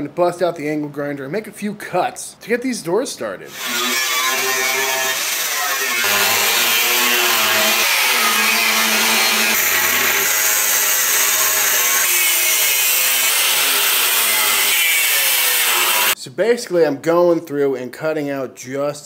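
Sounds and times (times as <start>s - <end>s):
angle grinder cutting steel: 3.5s - 16.2s.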